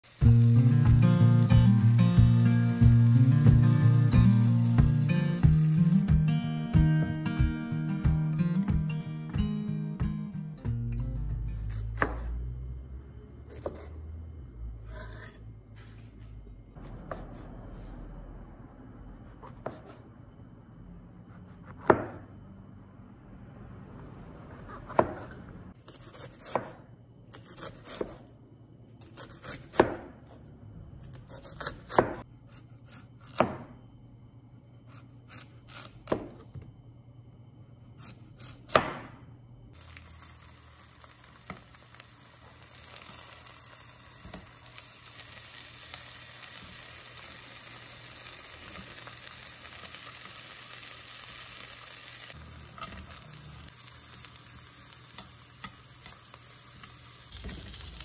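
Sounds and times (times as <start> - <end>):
vegetables sizzling in oil: 0.0 - 6.0, 39.8 - 58.0
cleaver chopping on cutting board: 21.8 - 22.2, 24.9 - 26.8, 29.4 - 30.1, 31.4 - 32.2, 33.2 - 33.6, 38.0 - 39.1.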